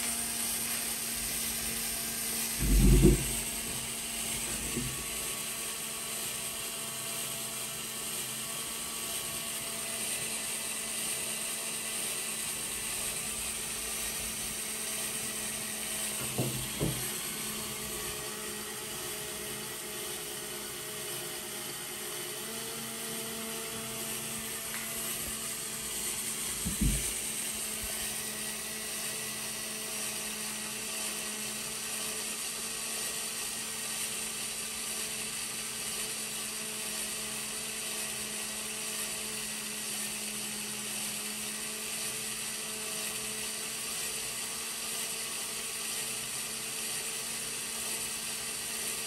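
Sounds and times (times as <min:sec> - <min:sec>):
small electric motor whirring: 0:00.0 - 0:49.0
brief knocks: 0:02.6 - 0:05.0.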